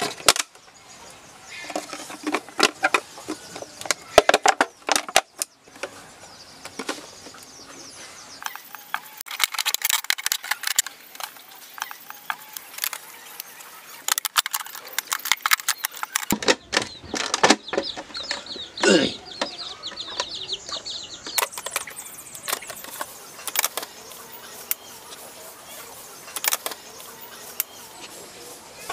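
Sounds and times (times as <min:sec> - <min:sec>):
plastic bottle crackling: 0:08.5 - 0:17.6
chicken clucking: 0:16.9 - 0:28.9.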